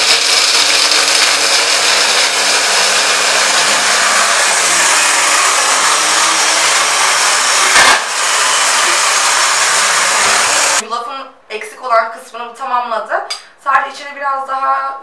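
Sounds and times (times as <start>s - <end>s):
stick blender grinding nuts: 0.0s - 10.8s.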